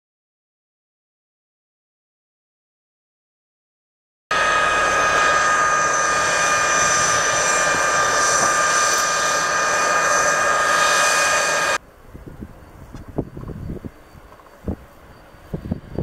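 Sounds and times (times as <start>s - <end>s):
jet engine whine and roar: 4.3s - 16.0s.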